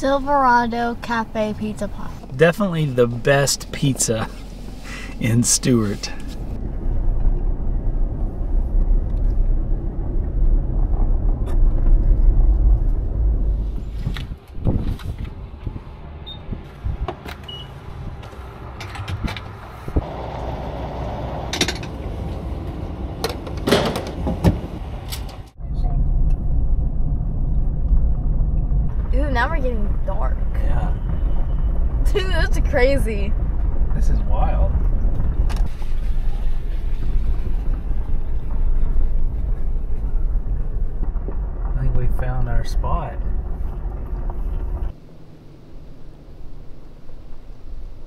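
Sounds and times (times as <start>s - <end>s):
car driving on rough road: 0.0s - 48.0s
sharp knocks and rattles: 23.2s - 25.4s.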